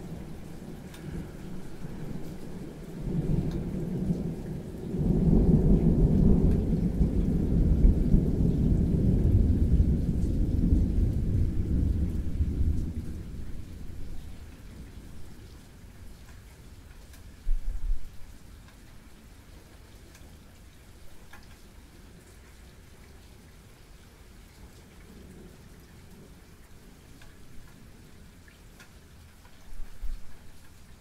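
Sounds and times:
thunder rumbling: 0:00.0 - 0:15.1
steady rain: 0:00.0 - 0:31.0.

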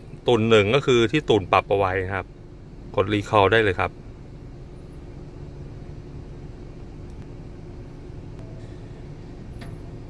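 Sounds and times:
car idling cabin hum: 0:00.0 - 0:10.0
faint steady tone: 0:00.0 - 0:10.0.

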